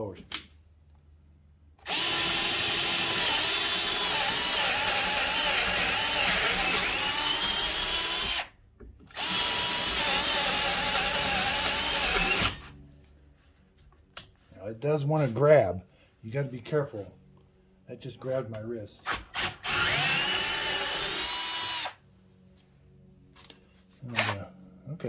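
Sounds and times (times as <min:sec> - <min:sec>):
cordless drill whining into wood: 0:01.8 - 0:12.7, 0:19.0 - 0:22.0.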